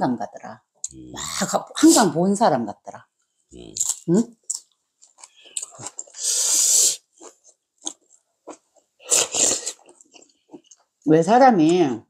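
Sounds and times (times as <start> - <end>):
slurping soup: 9.0 - 10.5.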